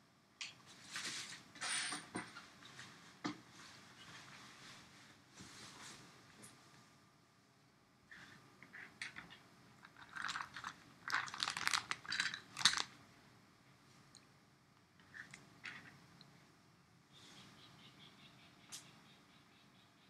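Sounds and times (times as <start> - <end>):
crunching and crackling: 9.8 - 13.0.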